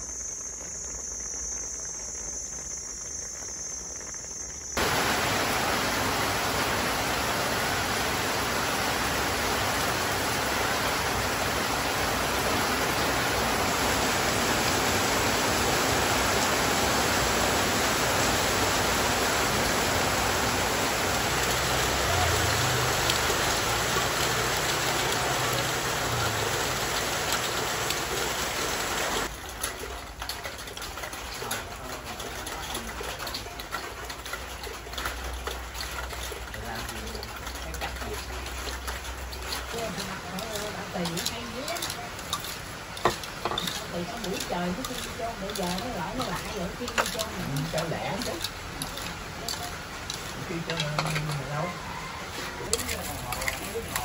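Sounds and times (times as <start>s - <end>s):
high insect trill: 0.0s - 28.0s
heavy rain pouring: 4.8s - 54.0s
water streaming onto leaves: 4.8s - 54.0s.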